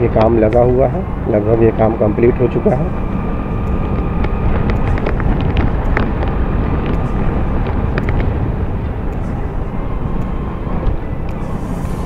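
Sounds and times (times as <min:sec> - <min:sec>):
faint steady whine: 0:00.0 - 0:12.0
road vehicle rumbling: 0:00.0 - 0:12.0
wind buffeting microphone: 0:00.0 - 0:12.0
light ticks: 0:03.6 - 0:11.6.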